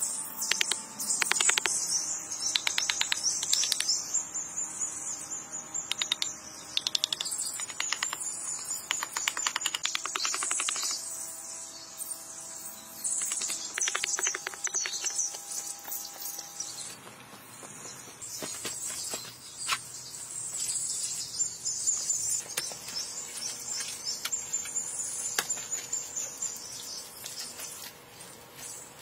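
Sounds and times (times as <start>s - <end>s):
insects chirring: 0.0s - 16.5s
wooden blocks knocking: 8.9s - 11.0s, 13.2s - 15.2s.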